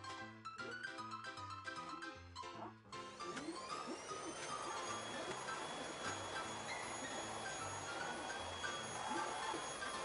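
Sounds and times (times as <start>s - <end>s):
background music with chimes and bass: 0.0s - 10.0s
vacuum cleaner motor whine: 3.2s - 10.0s.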